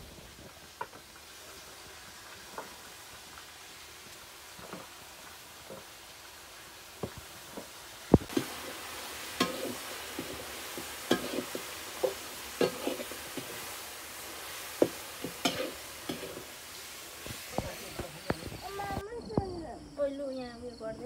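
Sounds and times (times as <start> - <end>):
meat and onions sizzling: 0.0 - 19.7
metal ladle scraping pan: 8.3 - 13.8, 14.4 - 18.0.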